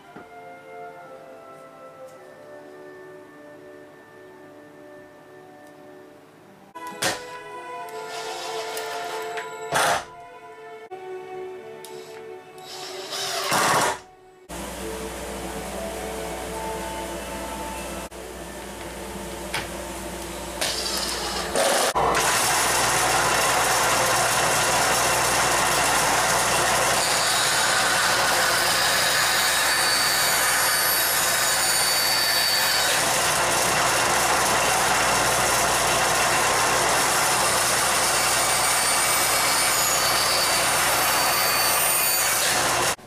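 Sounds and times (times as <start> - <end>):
band saw cutting wood: 7.0 - 10.1, 11.8 - 14.0, 20.6 - 43.0.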